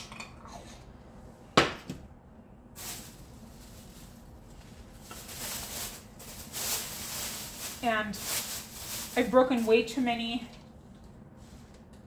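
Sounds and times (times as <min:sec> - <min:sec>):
plastic bag rustling: 0:02.8 - 0:10.4.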